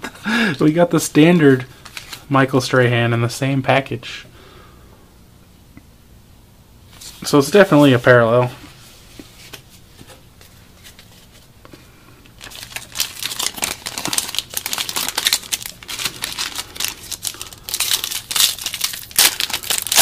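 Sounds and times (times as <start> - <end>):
foil wrapper crinkling: 12.4 - 20.0.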